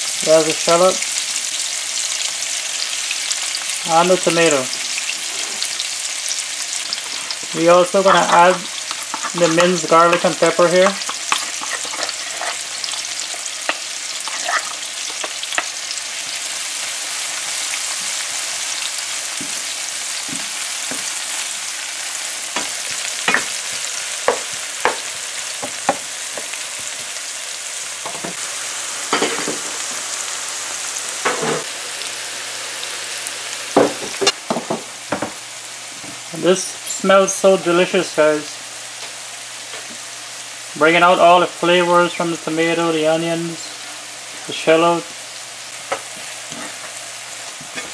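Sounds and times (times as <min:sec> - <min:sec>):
vegetables sizzling in oil: 0:00.0 - 0:47.9
spatula scraping pan: 0:06.8 - 0:15.8.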